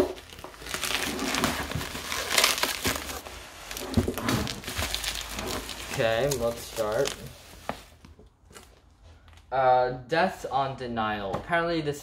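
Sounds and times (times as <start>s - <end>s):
bubble wrap crinkling and rustling: 0.0s - 9.4s.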